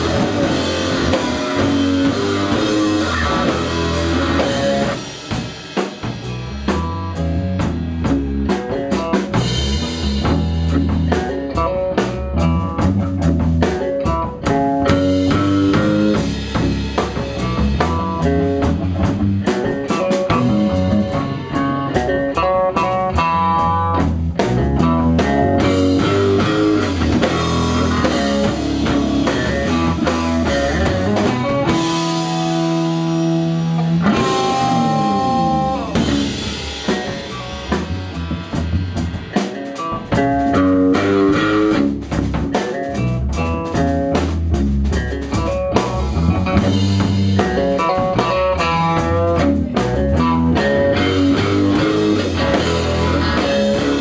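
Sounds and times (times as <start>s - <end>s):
sliding guitar notes: 0.0s - 5.1s, 8.6s - 42.0s, 42.6s - 54.0s
rock band playing: 0.0s - 54.0s.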